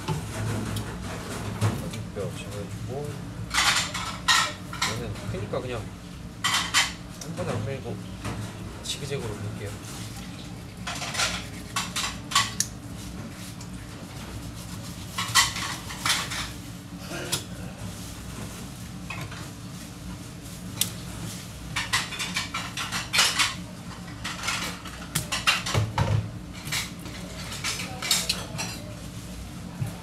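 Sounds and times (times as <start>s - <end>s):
knife scraping on plastic cutting board: 10.5s - 12.2s.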